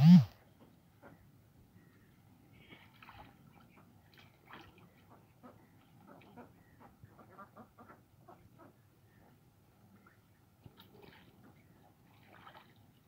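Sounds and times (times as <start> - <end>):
small splashes in water: 2.6 - 6.5, 10.0 - 13.0.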